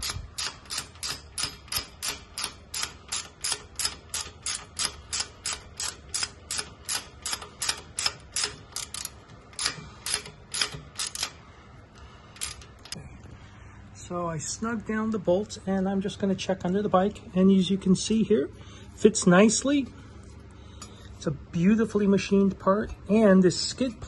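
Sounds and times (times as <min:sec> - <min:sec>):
socket ratchet clicking: 0:00.0 - 0:11.4, 0:12.4 - 0:13.0.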